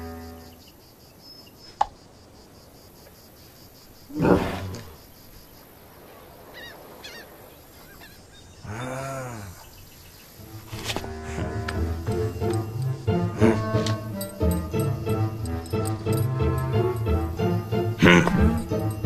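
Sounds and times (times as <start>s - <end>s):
faint bird chirps: 0.1s - 1.8s, 6.2s - 10.4s
donkey braying: 10.4s - 19.0s.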